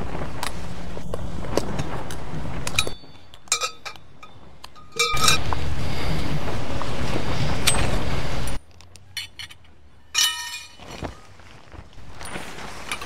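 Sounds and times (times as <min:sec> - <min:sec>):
metal tent pegs clinking: 0:02.6 - 0:05.6, 0:07.6 - 0:11.4, 0:12.1 - 0:13.0.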